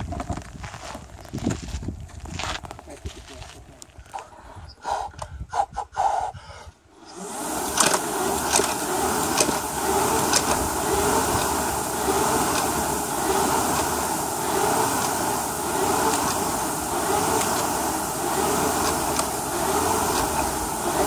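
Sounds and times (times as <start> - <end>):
rowing machine fan whirring: 6.9 - 21.0
sharp clicks: 7.7 - 9.6.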